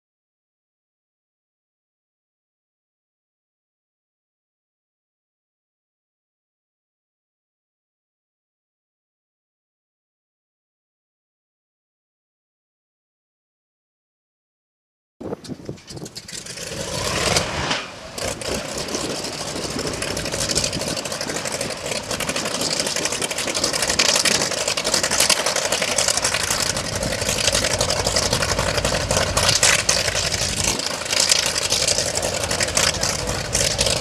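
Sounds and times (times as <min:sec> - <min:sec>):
radial aircraft engine starting and idling: 0:15.3 - 0:34.0.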